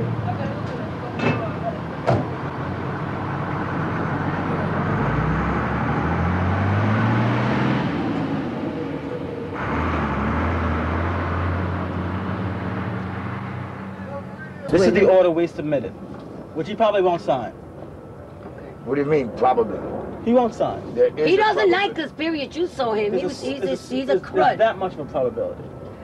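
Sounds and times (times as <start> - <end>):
truck engine pulling away: 0.0 - 15.8
street traffic noise: 0.0 - 26.0.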